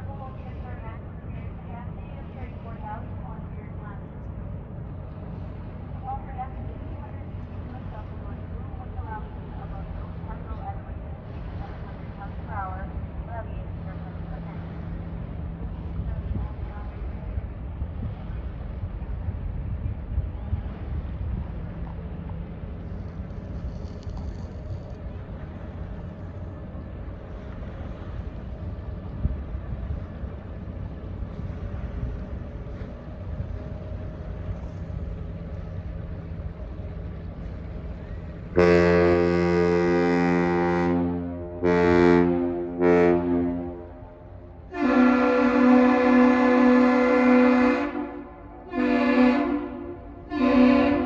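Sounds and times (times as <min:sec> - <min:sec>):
ship engine rumble: 0:00.0 - 0:51.0
wind buffeting microphone: 0:00.0 - 0:51.0
higher-pitched horn blasts: 0:38.6 - 0:51.0.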